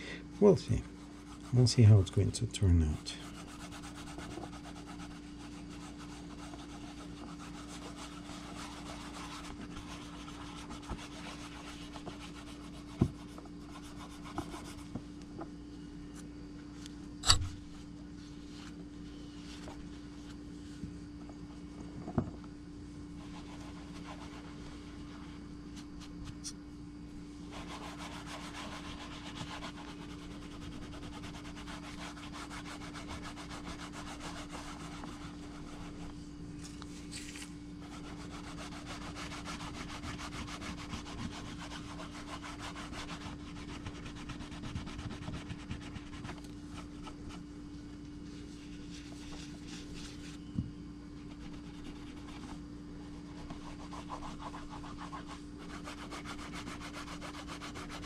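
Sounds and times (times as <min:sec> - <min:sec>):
low steady hum: 0:00.0 - 0:58.0
cloth scrubbing leather: 0:02.9 - 0:14.8, 0:23.2 - 0:25.2, 0:27.4 - 0:36.1, 0:37.8 - 0:47.4, 0:53.2 - 0:58.0.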